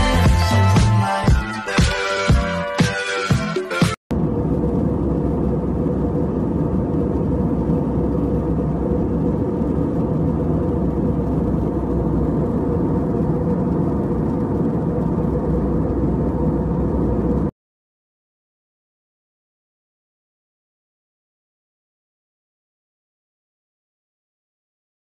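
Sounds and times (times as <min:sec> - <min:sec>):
faint hum: 0:04.1 - 0:17.5
low rumble: 0:04.1 - 0:17.5.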